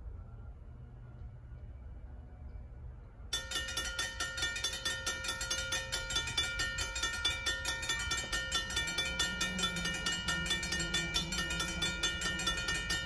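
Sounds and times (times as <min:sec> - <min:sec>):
crossing warning bell ringing: 0:03.3 - 0:13.0.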